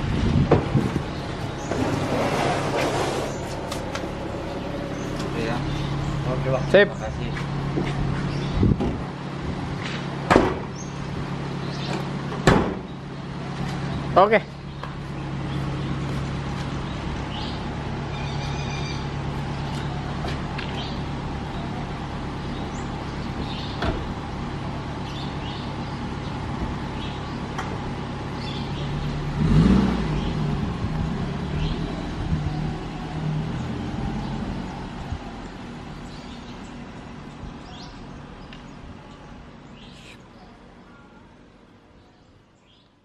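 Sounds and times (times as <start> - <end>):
van engine idling: 0.0 - 33.4
low street hum: 0.0 - 43.0
car door slamming: 10.2 - 10.8, 11.9 - 13.0.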